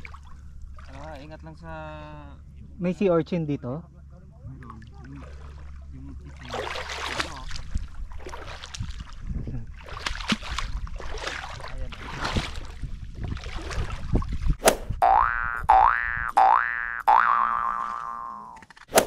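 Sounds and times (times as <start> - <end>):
water sloshing from wading: 0.0 - 1.6, 4.4 - 15.4, 17.2 - 19.0
low steady rumble: 0.0 - 18.6.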